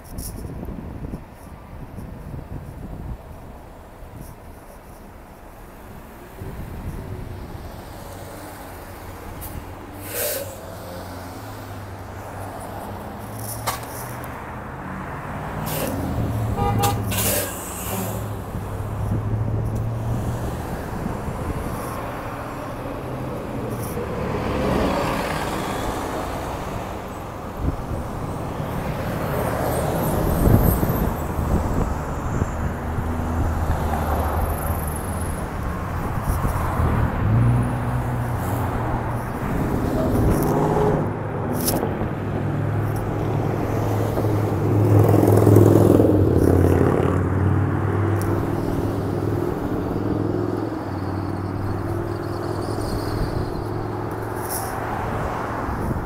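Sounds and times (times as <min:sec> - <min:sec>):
street traffic: 0:00.0 - 0:56.0
air-brake hisses: 0:09.4 - 0:10.8, 0:15.6 - 0:16.0, 0:17.1 - 0:18.3.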